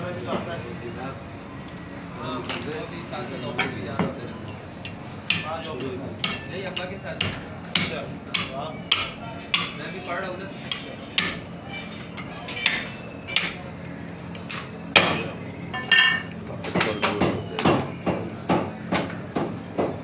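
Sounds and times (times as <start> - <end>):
metal clink: 15.8 - 16.4.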